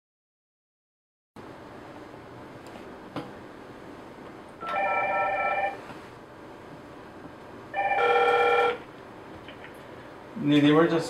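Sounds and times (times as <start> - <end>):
desk phone electronic ringing: 4.6 - 5.8, 7.7 - 8.9.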